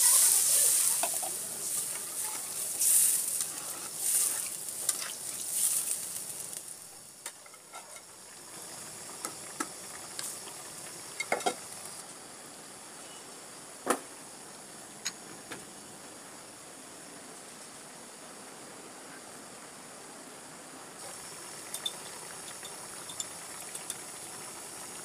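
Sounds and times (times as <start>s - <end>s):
curry sizzling: 0.0s - 12.1s, 21.0s - 25.0s.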